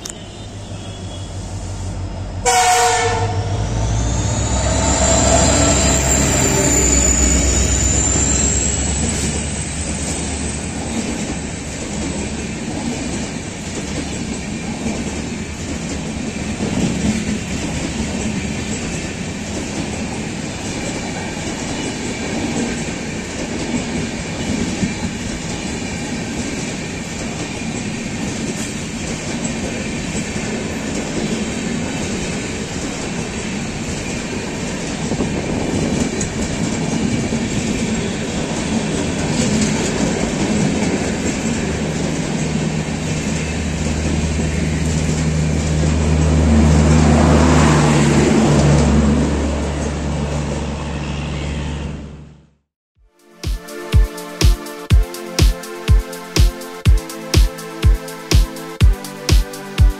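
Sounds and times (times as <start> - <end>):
diesel engine rumble and whine: 0.0 - 10.9
locomotive horn blast: 0.1 - 7.7
train wheels clattering on rails: 4.6 - 46.3.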